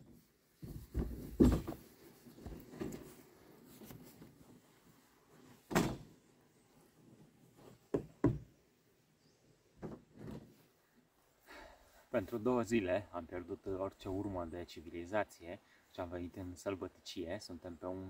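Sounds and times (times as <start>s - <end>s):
knocks and thumps: 0.6s - 3.0s, 7.9s - 8.5s.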